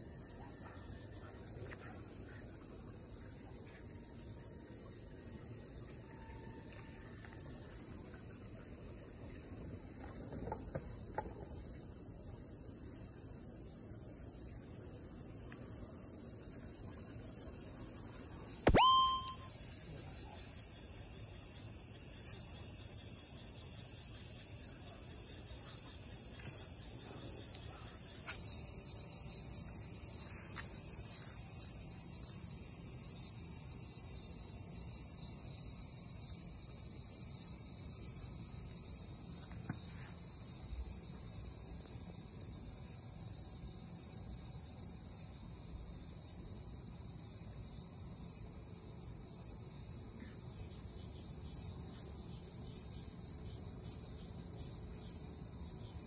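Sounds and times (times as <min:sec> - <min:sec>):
high-pitched insect chorus: 0:00.0 - 0:56.0
faint chirp: 0:18.5 - 0:20.4.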